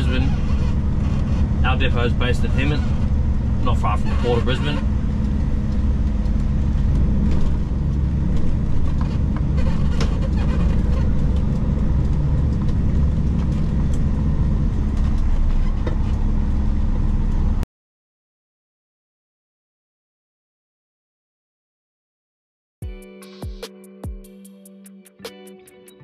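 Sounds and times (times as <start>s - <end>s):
diesel truck engine from cab: 0.0s - 17.6s.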